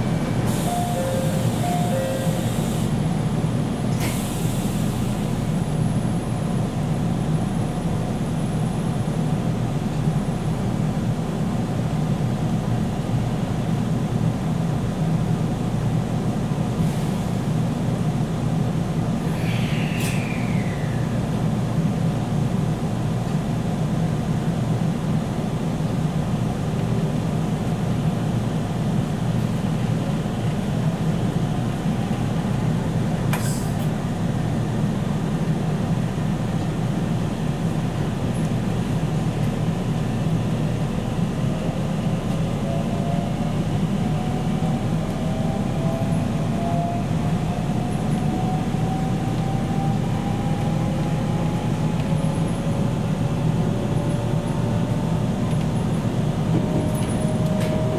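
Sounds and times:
train wheels rumbling: 0:15.0 - 0:57.9.

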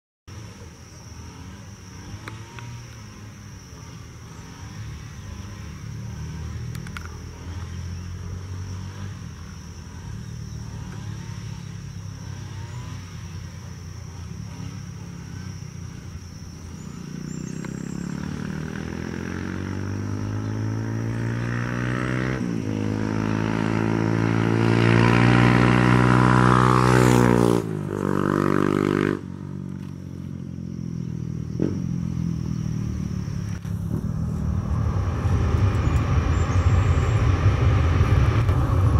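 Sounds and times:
jet engine rumble: 0:32.3 - 0:38.9
jet engine whine: 0:32.3 - 0:38.9.

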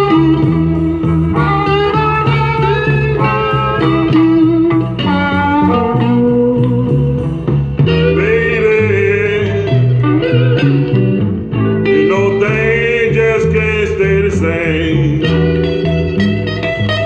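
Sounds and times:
guitar: 0:00.0 - 0:17.0
song playing on vinyl record: 0:00.0 - 0:17.0
steady bass notes: 0:00.0 - 0:17.0
person singing: 0:05.6 - 0:10.5, 0:11.8 - 0:15.8.

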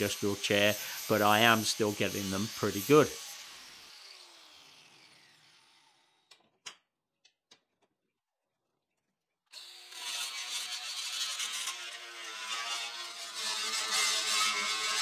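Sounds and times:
angle grinder grinding steel: 0:00.0 - 0:06.3, 0:09.6 - 0:15.0
angle grinder spinning down: 0:00.0 - 0:06.3, 0:09.6 - 0:15.0.

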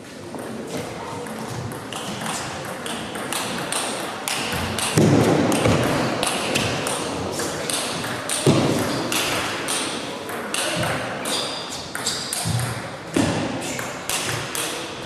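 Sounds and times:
table tennis ball pings: 0:01.7 - 0:13.3.

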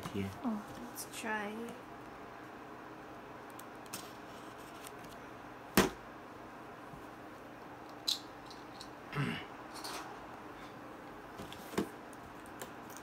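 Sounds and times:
low room hiss: 0:00.0 - 0:13.0.

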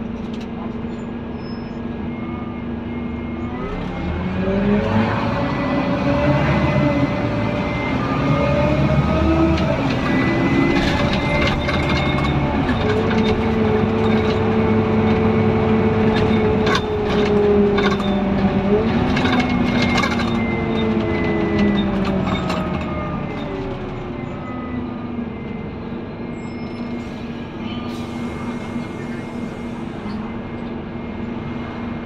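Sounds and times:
bus engine droning and whining: 0:00.0 - 0:32.0
rattles from bus body: 0:08.8 - 0:24.2.

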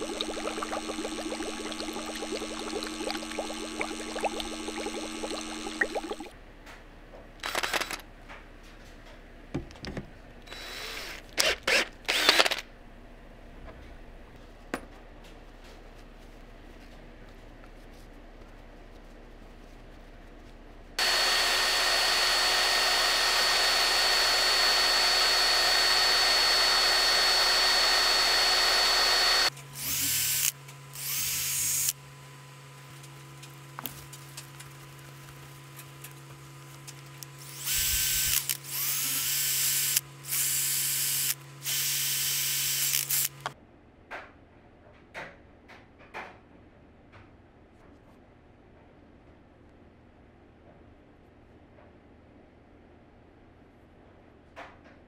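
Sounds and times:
electric power tool running: 0:00.0 - 0:06.3, 0:10.5 - 0:12.6, 0:21.0 - 0:32.0, 0:37.4 - 0:43.5
low steady hum: 0:00.0 - 0:11.1, 0:12.7 - 0:29.9.

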